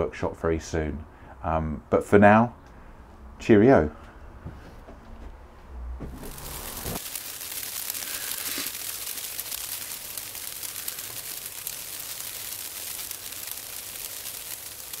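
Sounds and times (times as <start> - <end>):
crackling hiss: 6.1 - 15.0.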